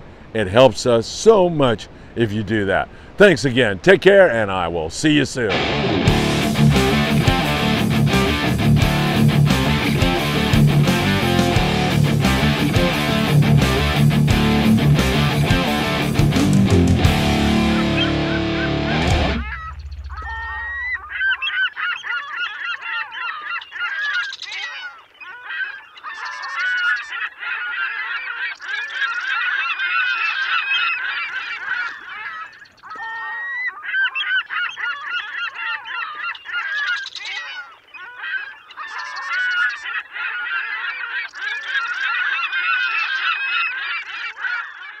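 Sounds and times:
flock of birds honking: 17.5 - 45.0.

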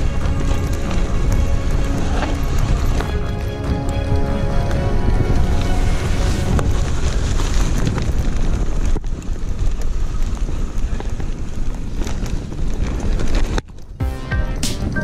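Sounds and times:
mountain bike rattling on dirt trail: 0.0 - 4.0, 5.3 - 14.0
wind buffeting microphone: 0.0 - 14.0.

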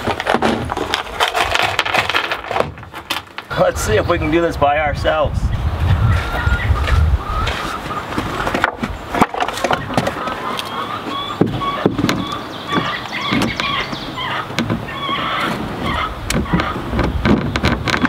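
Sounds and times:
wooden knocks and clatter: 0.0 - 3.6, 6.8 - 18.0.

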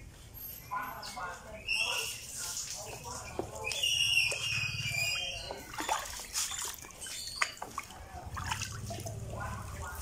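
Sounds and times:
water splashing in a plastic tub: 2.9 - 10.0
water dripping: 5.1 - 9.3.

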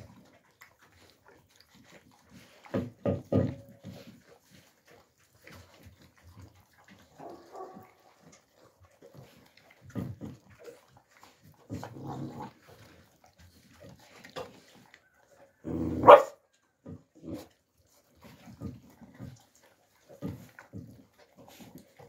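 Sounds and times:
puppies chewing and clicking: 0.0 - 22.0
puppy growling: 6.2 - 17.5
puppy barking: 7.2 - 8.1, 16.0 - 16.4.

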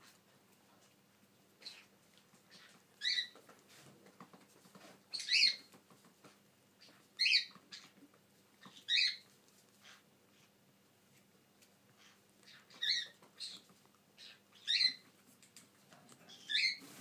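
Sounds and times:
faint small clicks: 15.4 - 16.2.

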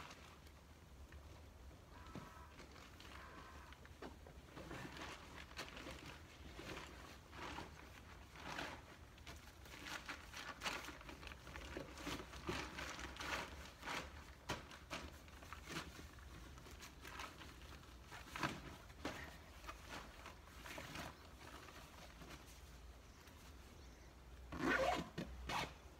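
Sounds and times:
tent fabric rustling and crinkling: 0.0 - 25.9.

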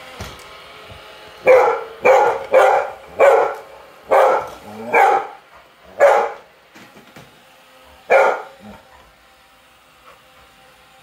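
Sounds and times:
dog barking: 1.4 - 6.5, 8.1 - 8.8.

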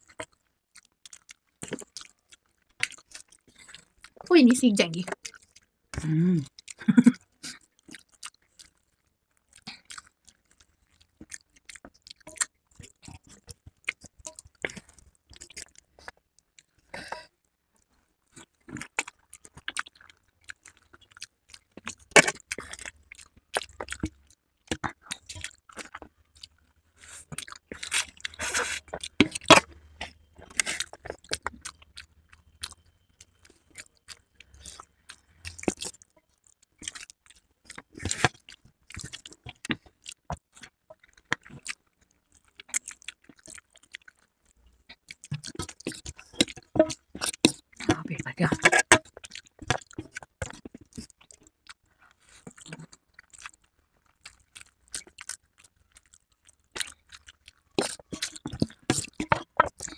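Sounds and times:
wet chewing and smacking: 0.0 - 59.9
noodle slurping: 27.7 - 29.7.

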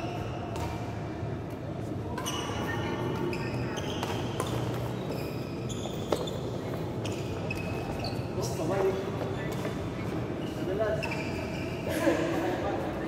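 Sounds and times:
shoes squeaking on court floor: 0.0 - 13.0.

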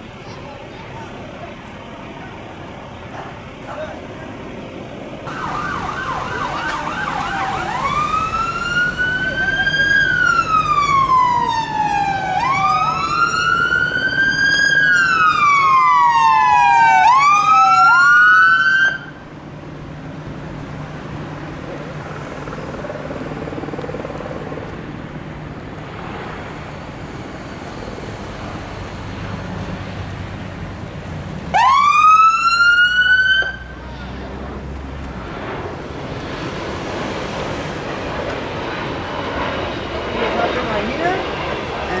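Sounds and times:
traffic noise: 0.0 - 42.0
vehicle engine: 0.0 - 42.0
ambulance siren: 5.3 - 19.3, 31.5 - 33.9.

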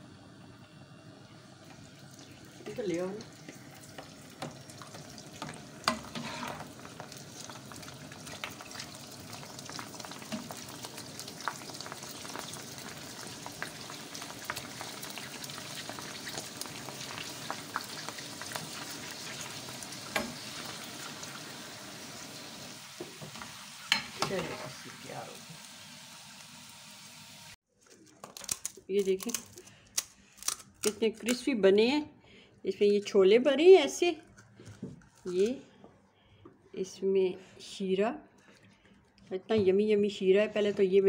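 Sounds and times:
shells deep-frying in hot oil: 0.0 - 27.6.

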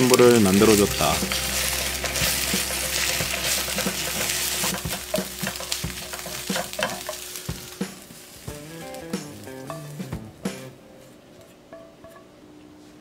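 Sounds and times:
egg sizzling in frying pan: 0.0 - 10.8
spatula scraping and tapping pan: 0.6 - 8.6.

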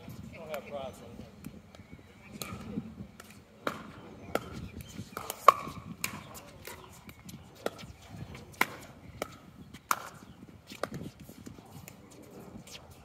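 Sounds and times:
paddles striking ball: 2.4 - 7.9.

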